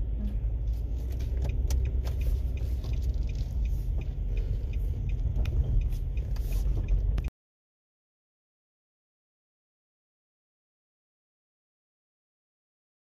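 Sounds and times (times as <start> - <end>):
car rumbling: 0.0 - 7.3.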